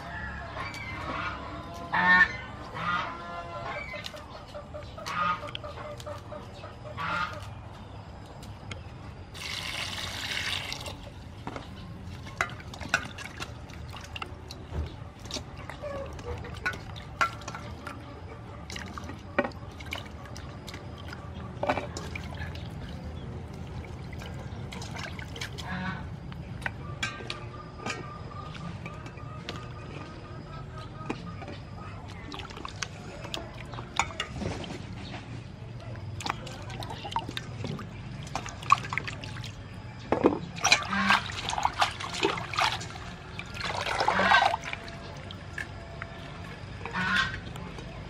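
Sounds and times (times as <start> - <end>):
geese honking: 0.0 - 7.7, 25.4 - 32.3, 40.5 - 47.7
water splashing in bowl: 9.3 - 27.4, 31.1 - 35.0, 35.8 - 47.9.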